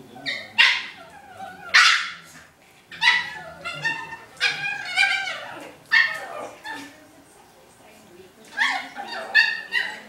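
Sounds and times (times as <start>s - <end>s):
small dogs yipping and barking: 0.1s - 7.0s, 8.5s - 10.0s.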